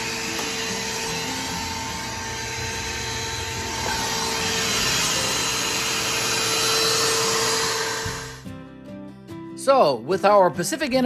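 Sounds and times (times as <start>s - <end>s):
vacuum cleaner whining: 0.0s - 8.5s
guitar music: 0.0s - 11.0s.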